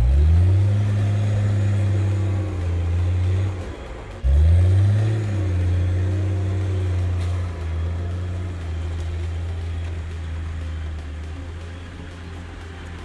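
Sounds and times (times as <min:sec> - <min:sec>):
engine pulling under load: 0:00.0 - 0:13.0.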